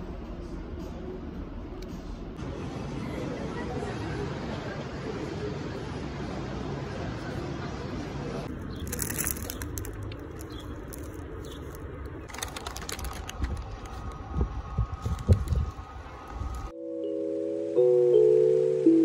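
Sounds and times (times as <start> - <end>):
crowd babble: 2.4 - 8.5
paper bag crinkling: 8.7 - 14.3.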